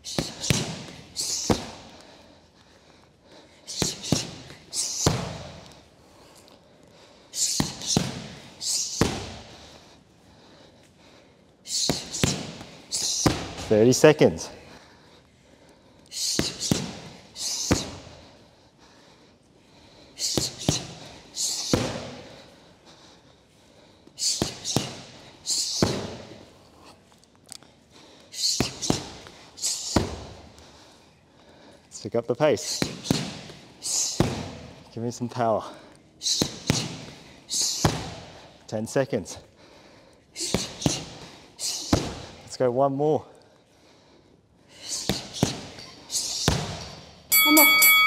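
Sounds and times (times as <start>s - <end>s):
sharp exhales: 0.0s - 2.3s, 3.4s - 11.0s, 11.6s - 13.7s, 16.1s - 19.1s, 19.9s - 22.5s, 24.1s - 26.3s, 28.2s - 31.0s, 32.6s - 34.5s, 36.2s - 38.5s, 39.7s - 42.4s, 44.7s - 46.6s
punches and kicks smacking pads: 0.1s - 1.8s, 11.9s - 13.7s, 34.2s - 34.6s.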